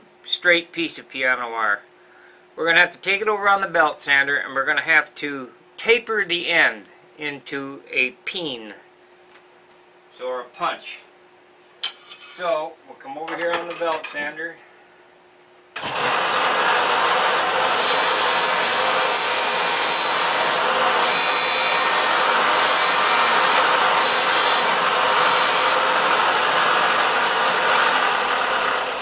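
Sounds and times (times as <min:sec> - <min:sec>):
belt sander running: 0:15.8 - 0:29.0
wire grinding on sander belt: 0:15.8 - 0:29.0.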